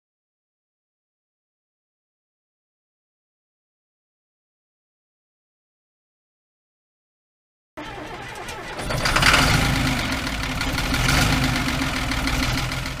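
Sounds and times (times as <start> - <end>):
tractor engine running: 7.8 - 13.0.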